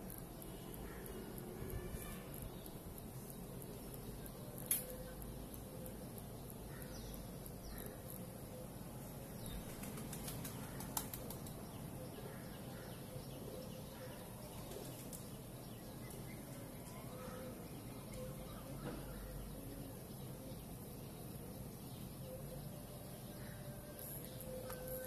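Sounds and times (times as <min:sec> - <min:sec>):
faint bird chirps: 0:00.0 - 0:25.0
steady background hiss: 0:00.0 - 0:25.0
soft clicks: 0:02.3 - 0:05.2.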